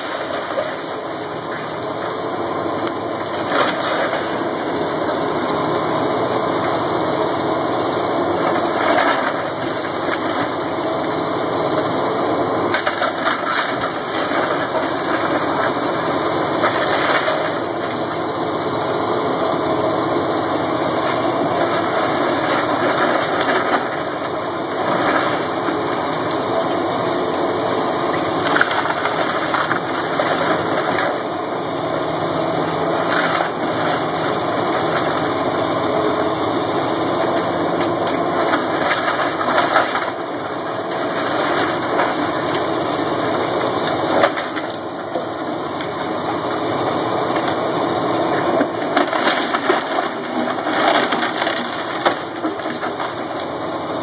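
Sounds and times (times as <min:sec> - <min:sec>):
excavator diesel engine running: 0:00.0 - 0:54.0
wood cracking: 0:28.2 - 0:31.3, 0:48.4 - 0:53.6.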